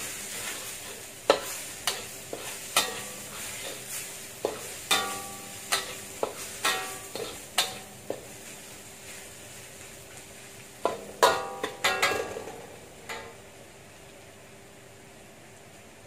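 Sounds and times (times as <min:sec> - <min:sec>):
oil sizzling: 0:00.0 - 0:16.0
metal spatula clanking on wok: 0:01.3 - 0:03.8, 0:04.4 - 0:08.3, 0:10.8 - 0:13.4.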